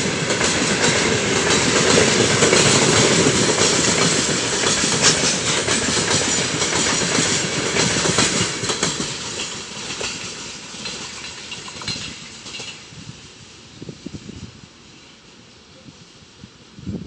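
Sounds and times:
train wheels clattering on rails: 0.0s - 13.4s.

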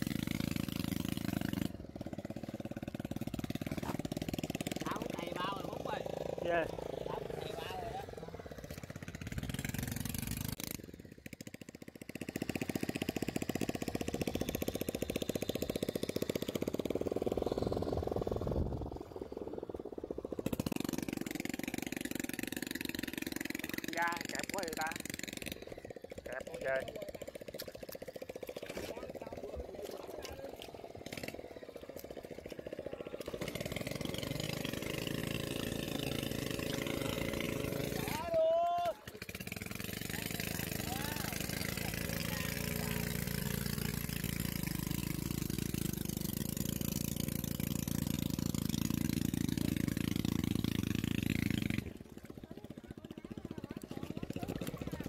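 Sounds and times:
small engine running: 0.0s - 55.0s.

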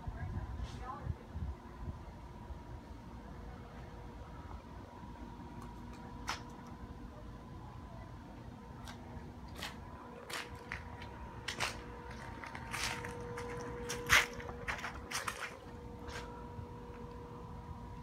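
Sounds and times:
faint steady hum: 0.0s - 18.0s
footsteps on brick pavers: 8.8s - 17.1s.

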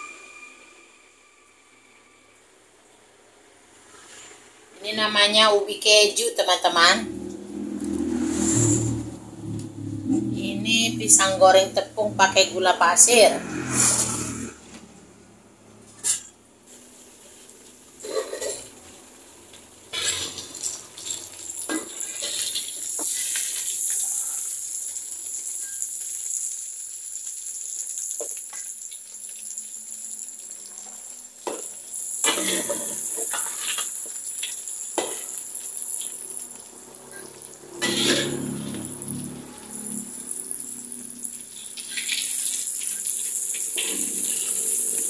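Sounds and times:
food sizzling in hot oil: 0.0s - 45.0s
metal spatula scraping wok: 7.8s - 9.2s, 12.3s - 15.0s, 15.8s - 17.4s, 18.0s - 18.9s, 19.9s - 24.4s, 32.2s - 34.0s, 37.1s - 40.5s, 41.4s - 45.0s.

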